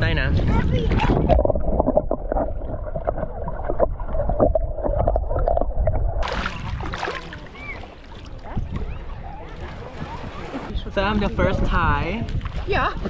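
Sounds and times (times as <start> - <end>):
water sloshing: 0.4 - 13.0
muffled underwater gurgling: 0.8 - 10.8.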